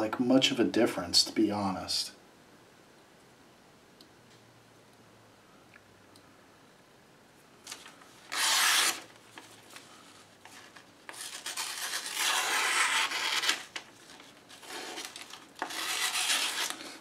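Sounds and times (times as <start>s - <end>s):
knife slicing through paper: 7.7s - 9.1s, 10.5s - 17.0s.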